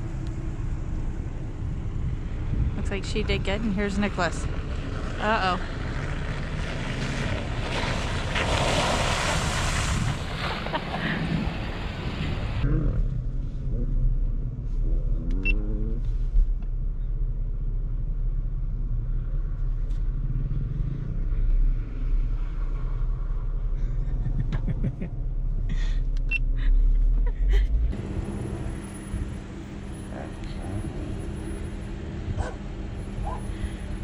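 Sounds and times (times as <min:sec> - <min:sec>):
wind noise on microphone: 0:01.6 - 0:03.4, 0:08.1 - 0:13.0, 0:32.2 - 0:32.6
car engine idling: 0:25.0 - 0:34.0.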